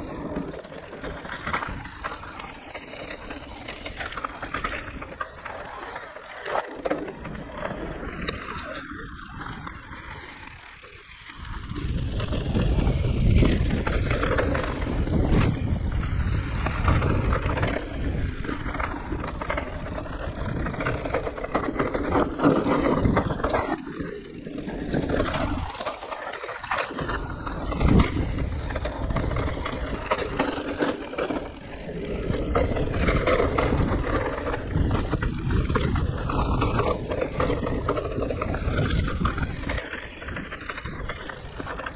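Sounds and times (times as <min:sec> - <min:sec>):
bike rattling: 0:00.0 - 0:41.9
tyres rumbling over ground: 0:11.4 - 0:41.9.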